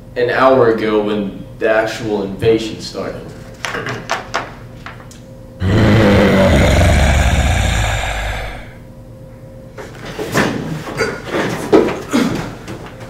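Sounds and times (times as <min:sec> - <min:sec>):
loud low noise: 0:05.6 - 0:08.8.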